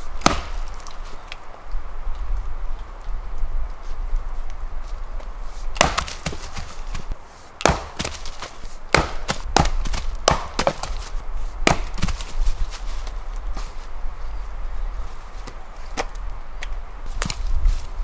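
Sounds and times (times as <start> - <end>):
axe cracking into wood: 0.2 - 1.0, 5.8 - 7.0, 7.6 - 12.3.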